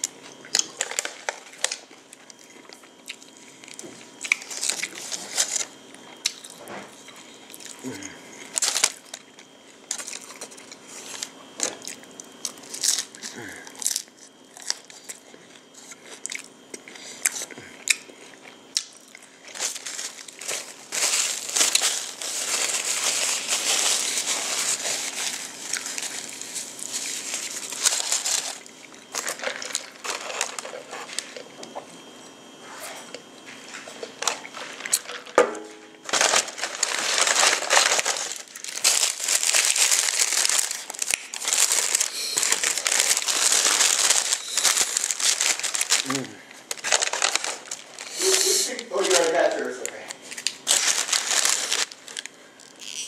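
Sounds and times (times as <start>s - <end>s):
crunching tacos: 0.0s - 31.8s, 33.2s - 35.4s, 36.0s - 53.0s
paper wrapper crackling: 0.6s - 1.9s, 4.3s - 5.7s, 8.5s - 9.2s, 19.5s - 31.4s, 36.0s - 53.0s.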